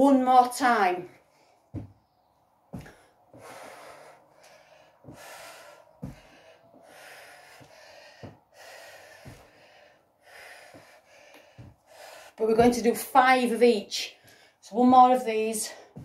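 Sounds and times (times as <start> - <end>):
footsteps thudding on carpet: 1.7 - 2.0, 2.7 - 3.7, 5.0 - 6.6, 7.2 - 9.8, 10.5 - 12.8
woman breathing hard: 2.8 - 12.4.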